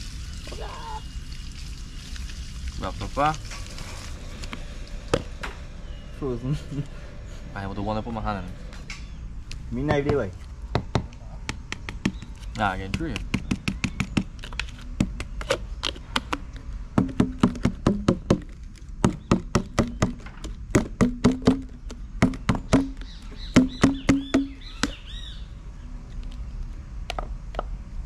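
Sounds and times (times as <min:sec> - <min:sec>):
knocking on plastic tub: 0:17.0 - 0:18.4, 0:19.0 - 0:25.0.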